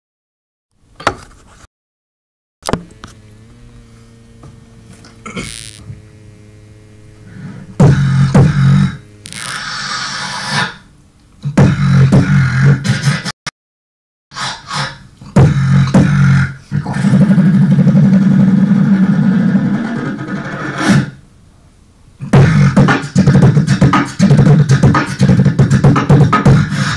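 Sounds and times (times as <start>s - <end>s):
beatboxing into a microphone: 7.4s - 13.4s, 14.3s - 21.2s, 22.2s - 26.9s.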